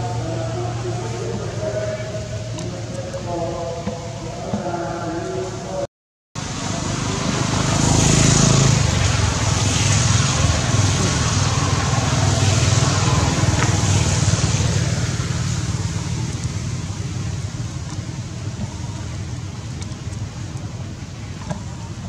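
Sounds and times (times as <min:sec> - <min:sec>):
loud rumble with rushing hiss: 0:06.4 - 0:22.0.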